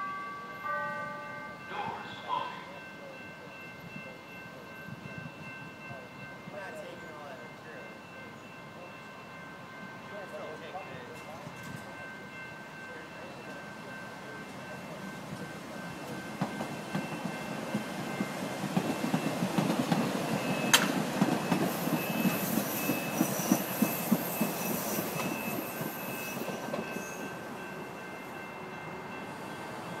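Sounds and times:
train wheels clacking on rails: 14.4 - 30.0
high thin wheel squeal: 21.7 - 27.3.

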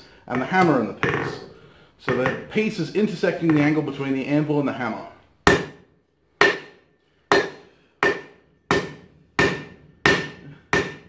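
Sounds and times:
hammer striking steel on anvil: 6.4 - 11.0.

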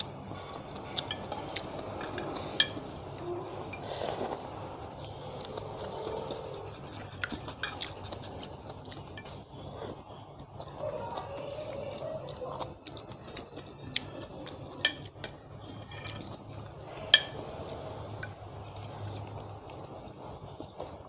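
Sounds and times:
slurping and chewing noodles: 0.0 - 18.3
cutlery clinking against bowl: 0.5 - 2.9, 6.8 - 8.2, 13.0 - 19.3.

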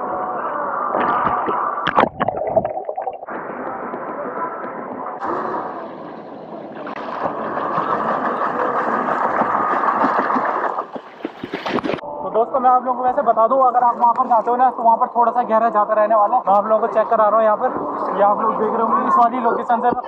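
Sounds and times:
sharp knocks or splashes: 8.8 - 12.0.

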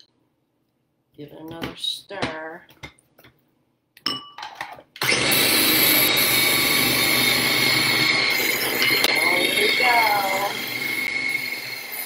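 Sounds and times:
food chopper motor whining: 5.0 - 12.0.

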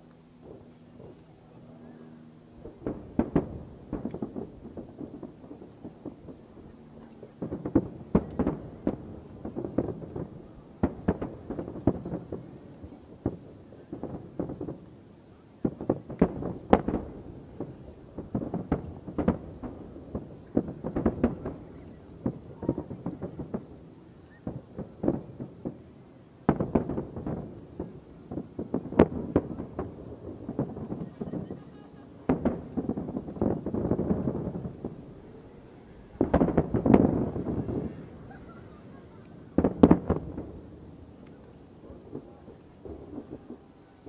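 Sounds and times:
firework shells booming and crackling: 0.0 - 44.0.

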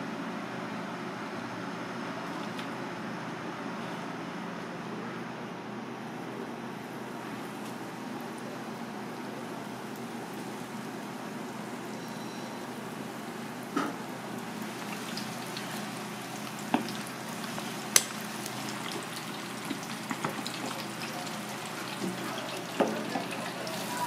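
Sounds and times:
food deep-frying in oil: 7.0 - 24.0.

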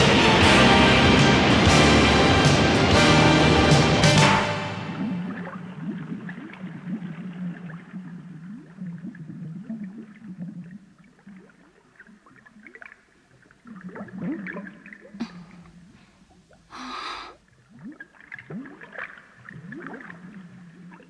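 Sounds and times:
short rising bubble sounds: 0.2 - 10.8.

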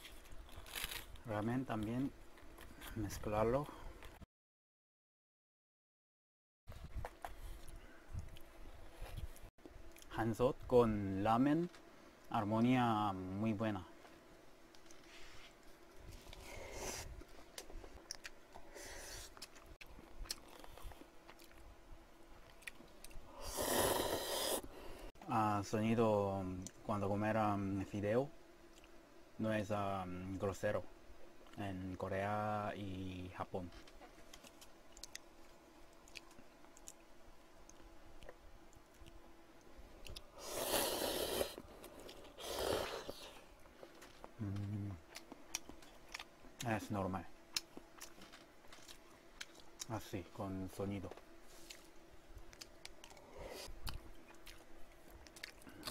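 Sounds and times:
person chewing: 16.0 - 21.7, 22.4 - 24.7, 34.2 - 39.2, 40.0 - 46.7, 47.5 - 50.0, 51.5 - 55.9
loud slurp of noodles: 23.4 - 24.6, 40.4 - 41.6, 42.4 - 43.2
person humming while chewing: 44.3 - 45.2.

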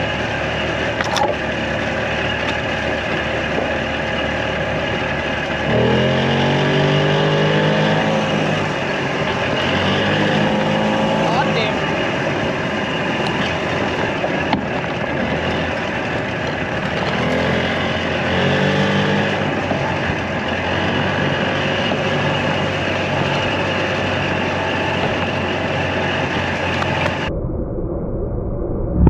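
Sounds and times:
golf cart motor running: 0.0 - 27.3
wind: 0.0 - 29.0.

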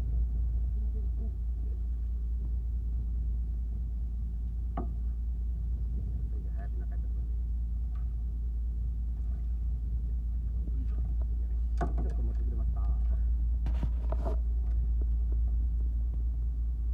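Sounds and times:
boat engine idling: 0.0 - 16.9
knocks and rattles of fishing tackle: 11.2 - 12.6.

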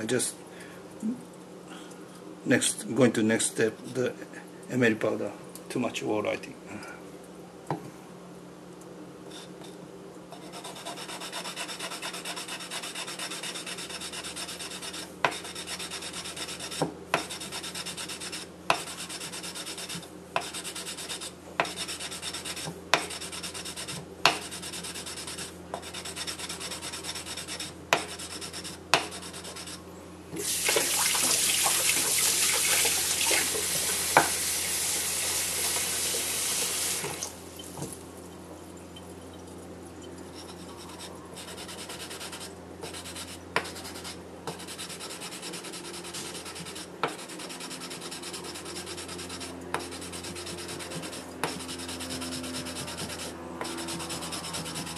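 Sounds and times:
wooden block scrubbing knife blade: 10.4 - 29.8, 40.4 - 54.9.

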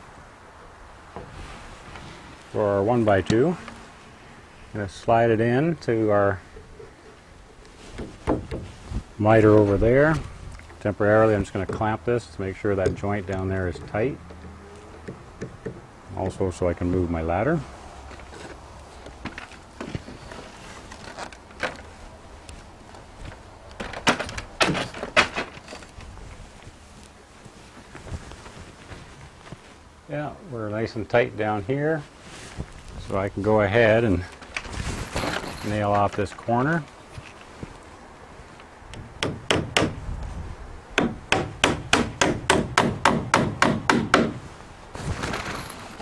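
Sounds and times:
ladder knocking and clattering: 23.8 - 25.9
hammer driving nails into wood: 39.2 - 40.0, 41.0 - 44.4.

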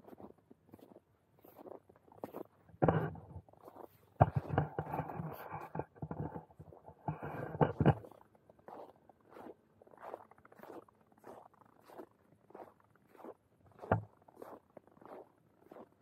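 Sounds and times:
camera rubbing against jacket: 0.0 - 12.0.

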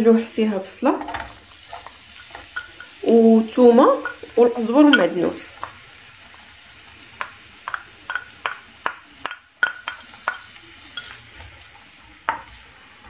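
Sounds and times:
onion sizzling in oil: 0.0 - 13.0
spatula knocking on pan: 7.2 - 11.1, 12.2 - 12.5.

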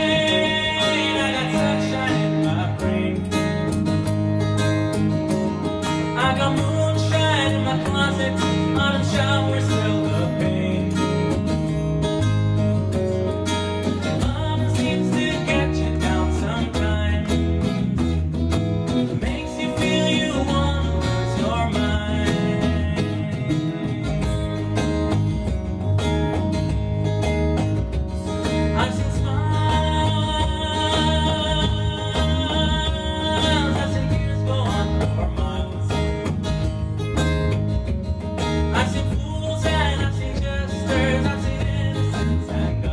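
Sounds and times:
man singing: 0.0 - 3.8, 6.1 - 11.5, 14.0 - 18.0, 19.1 - 25.2, 28.4 - 36.4, 38.6 - 42.9
electric bass: 0.0 - 42.9
strummed acoustic guitar: 0.0 - 42.9.

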